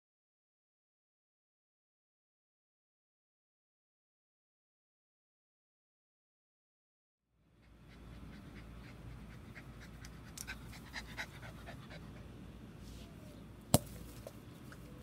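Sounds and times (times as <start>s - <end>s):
dog panting: 7.5s - 12.3s.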